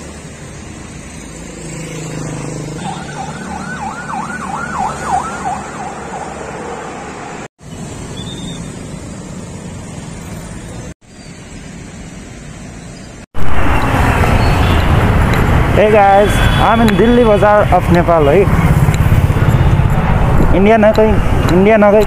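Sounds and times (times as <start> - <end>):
street traffic: 0.0 - 22.0
siren wailing: 2.8 - 6.6
loud rush of noise: 13.4 - 21.5.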